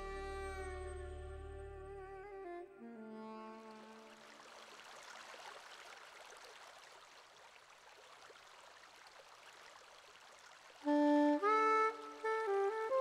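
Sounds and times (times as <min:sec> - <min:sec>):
music with held notes: 0:00.0 - 0:04.2, 0:10.9 - 0:13.0
stream water rushing: 0:03.7 - 0:13.0.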